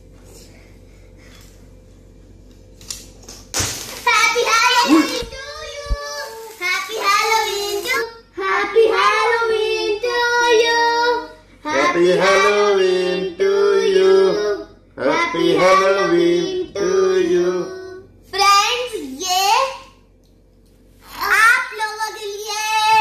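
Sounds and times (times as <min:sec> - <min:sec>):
child singing: 0:04.1 - 0:18.0.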